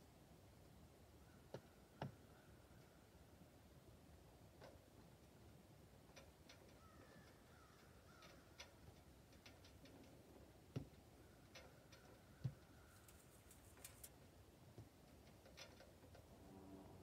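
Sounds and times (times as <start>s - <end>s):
light ticks: 6.1s - 14.2s
faint bird calls: 6.6s - 8.8s.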